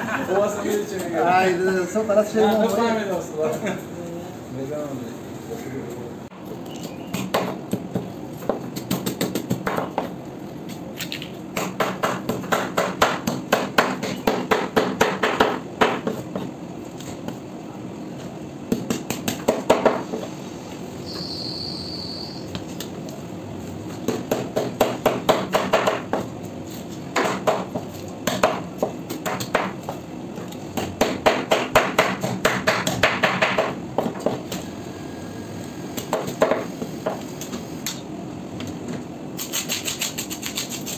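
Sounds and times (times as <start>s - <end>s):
cleaver scraping fish scales: 39.4s - 40.9s.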